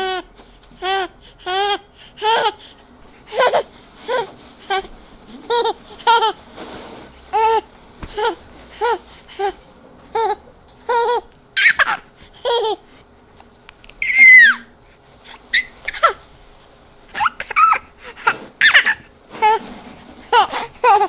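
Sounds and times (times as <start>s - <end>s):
baby-like cooing and giggling: 3.3s - 6.4s, 7.4s - 12.8s, 20.2s - 21.0s.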